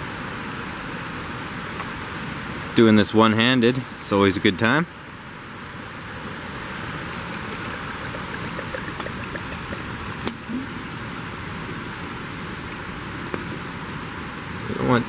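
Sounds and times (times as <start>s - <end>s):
stream rushing: 5.1s - 14.8s
water pouring into a metal pot: 7.1s - 10.5s.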